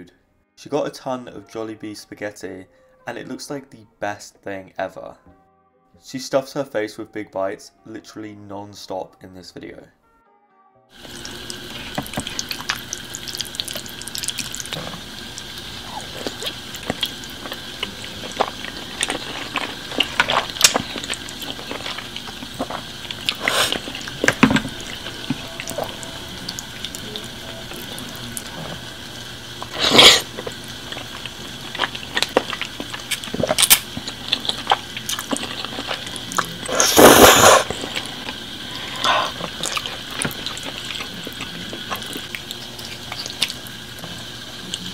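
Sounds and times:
slurping noodles: 0:11.0 - 0:27.4, 0:29.6 - 0:44.1
wet chewing and mouth smacking: 0:11.0 - 0:28.8, 0:29.6 - 0:44.9.

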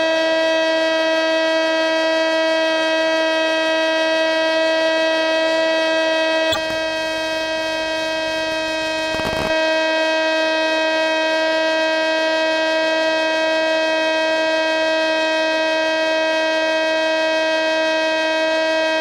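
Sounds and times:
buzzy motor whine: 0:05.8 - 0:10.1
burst of static: 0:06.5 - 0:09.5.

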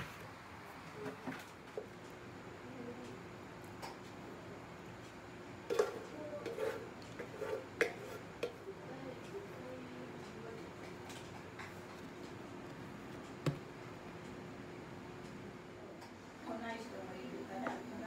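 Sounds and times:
hands working dough: 0:05.7 - 0:14.4.

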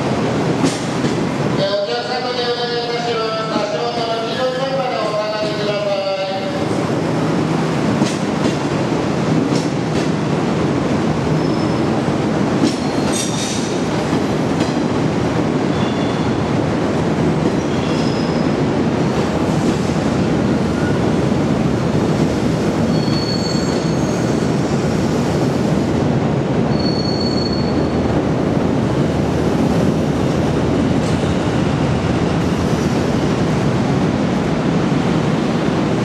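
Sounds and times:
steel wheels rumbling on rail: 0:00.0 - 0:36.0
high wheel squeals: 0:22.9 - 0:24.4, 0:26.7 - 0:28.0.

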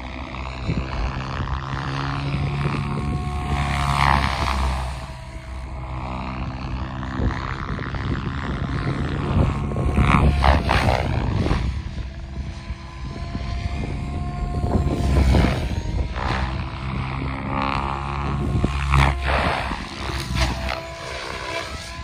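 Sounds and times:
helicopter rotor blades whooshing: 0:00.0 - 0:22.0
motor and gear whine: 0:00.0 - 0:22.0.

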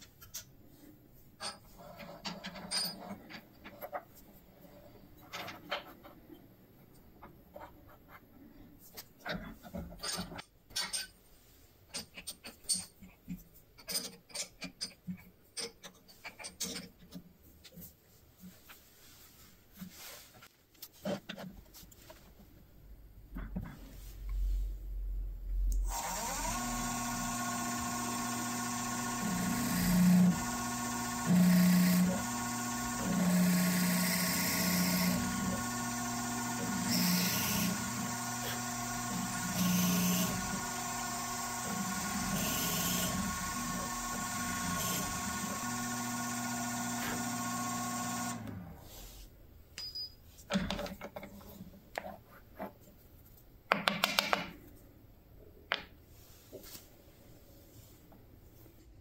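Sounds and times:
clicks and knocks in metal vise: 0:13.8 - 0:17.2
drill bit cutting wood: 0:25.8 - 0:48.6
drill press motor running: 0:25.8 - 0:48.8.

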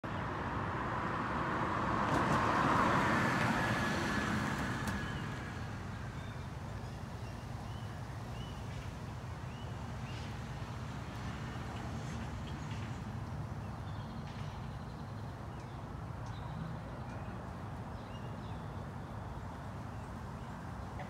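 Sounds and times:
passing vehicle rushing: 0:00.4 - 0:06.3.

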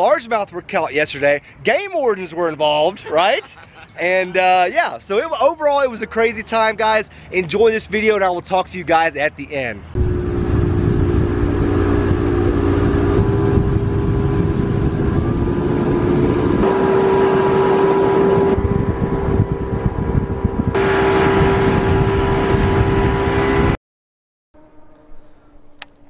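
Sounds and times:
wind: 0:00.0 - 0:23.8, 0:24.6 - 0:26.0
outboard motor running: 0:10.0 - 0:23.2.

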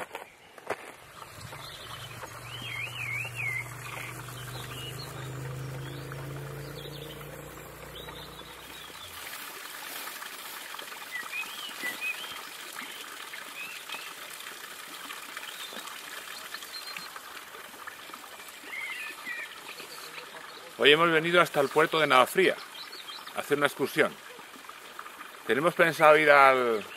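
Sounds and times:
water trickling from fountain: 0:00.7 - 0:26.9
bird chirps: 0:01.0 - 0:09.2
low steady hum: 0:01.0 - 0:09.2.

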